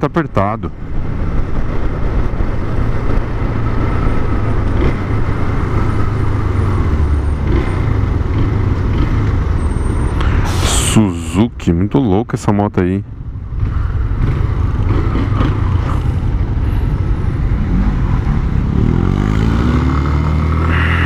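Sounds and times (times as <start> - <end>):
city traffic noise: 0.0 - 21.0
motorcycle engine: 2.3 - 10.1, 13.4 - 21.0
rush of noise: 10.0 - 11.5, 20.3 - 21.0.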